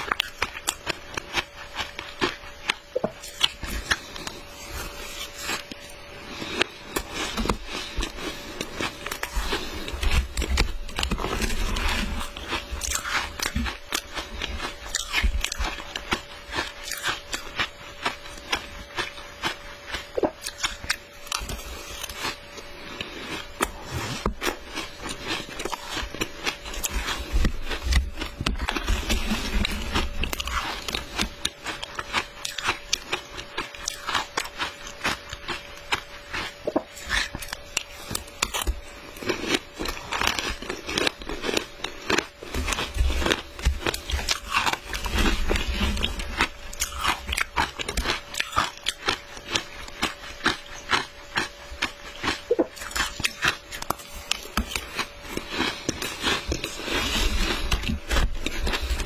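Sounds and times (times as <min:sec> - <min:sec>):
person chewing crunchy ice: 0:00.0 - 0:59.0.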